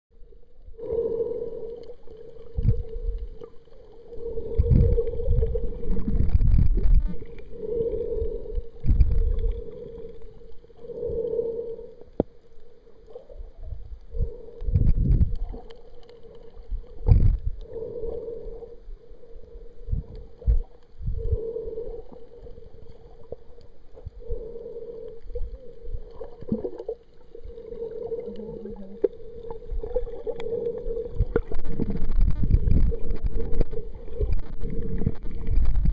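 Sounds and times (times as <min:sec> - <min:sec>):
underwater rushes and thuds: 0:02.0 - 0:10.6, 0:13.2 - 0:18.2, 0:19.5 - 0:21.4, 0:25.2 - 0:35.9.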